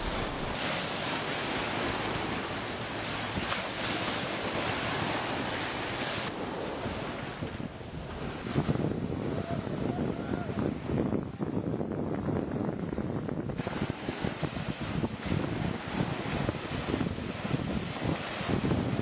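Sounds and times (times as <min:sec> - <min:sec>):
rushing water: 0:00.0 - 0:11.8, 0:13.4 - 0:19.0
wind buffeting microphone: 0:00.0 - 0:19.0.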